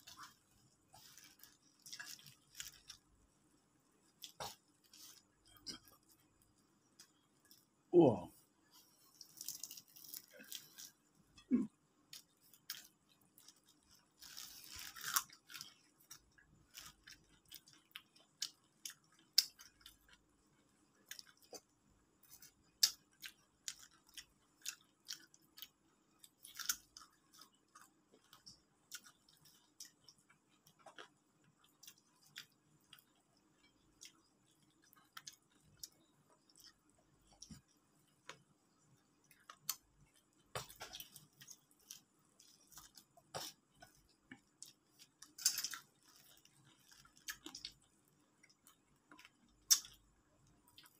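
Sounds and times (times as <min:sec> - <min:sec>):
people chewing crunchy food: 0:00.0 - 0:07.8, 0:08.4 - 0:50.9
faint steady hum: 0:00.0 - 0:50.9
wet chewing and smacking: 0:12.1 - 0:50.9.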